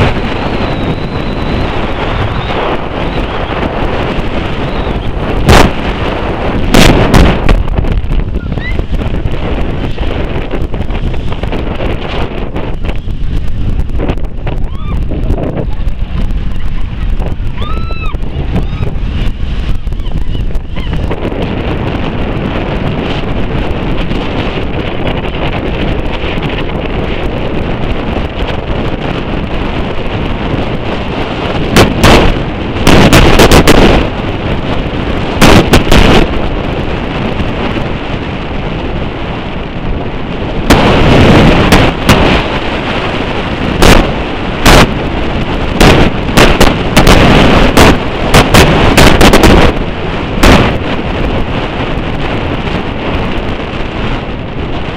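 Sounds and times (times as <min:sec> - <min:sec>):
wind buffeting microphone: 0:00.0 - 0:54.9.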